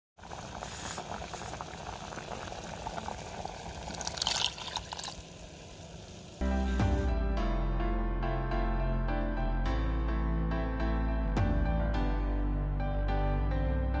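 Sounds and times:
steam hiss: 0.2 - 2.8
curry bubbling in a pot: 0.2 - 6.4
background music: 6.4 - 14.0.

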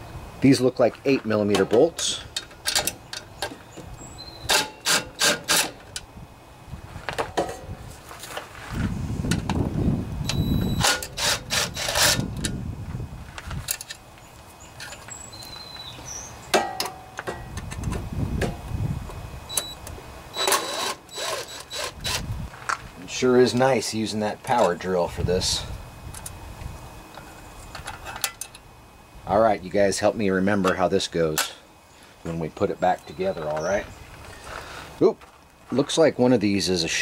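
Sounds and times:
cordless drill running: 10.7 - 12.2, 19.6 - 22.3.

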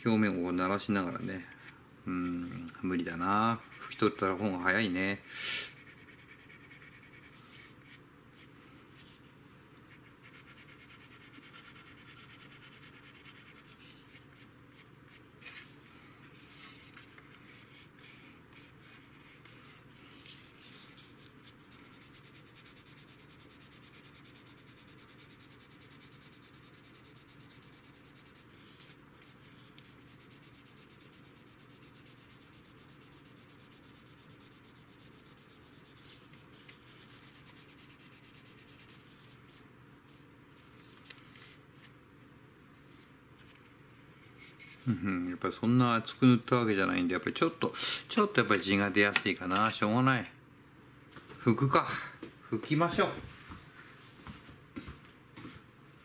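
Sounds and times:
faint sanding on plastic: 3.2 - 9.2, 16.4 - 40.2.

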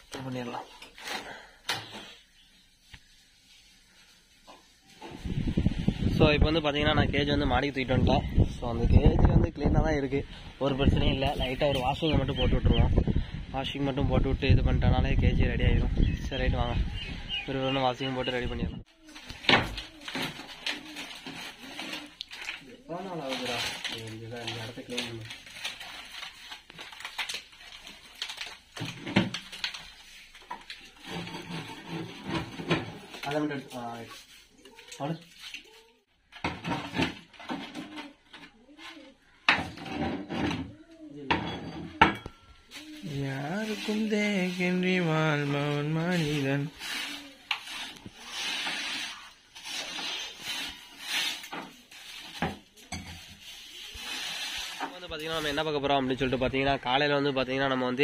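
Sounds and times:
scraping and tearing cardboard: 19.0 - 40.4, 42.8 - 55.8.

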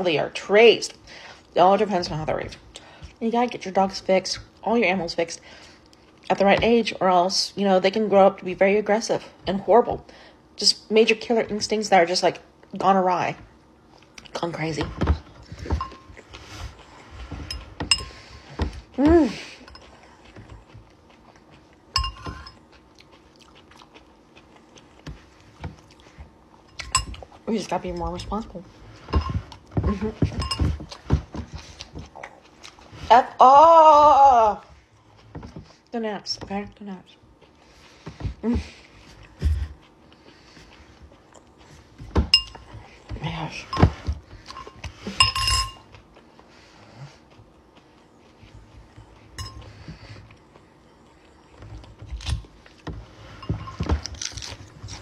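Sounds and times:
person chewing: 15.5 - 27.4, 30.7 - 33.0, 38.8 - 43.1, 53.5 - 55.0
metal fork clinking on glass bowl: 22.0 - 22.6, 44.6 - 45.8, 49.4 - 49.6.

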